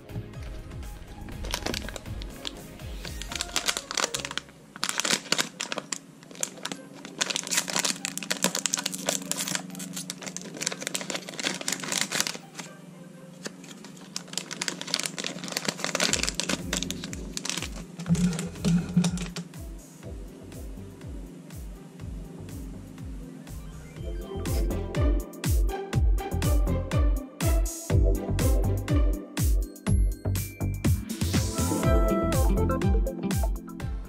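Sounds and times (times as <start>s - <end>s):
background music with beat: 0.0s - 3.5s, 16.7s - 34.0s
foil wrapper crinkling and tearing: 0.4s - 12.7s, 13.4s - 19.5s.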